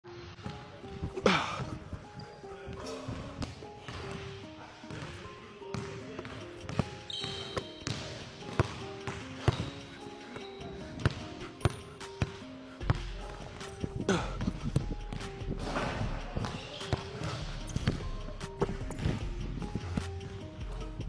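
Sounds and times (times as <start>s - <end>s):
background music: 0.0s - 21.0s
basketball bouncing on hardwood floor: 5.7s - 9.7s.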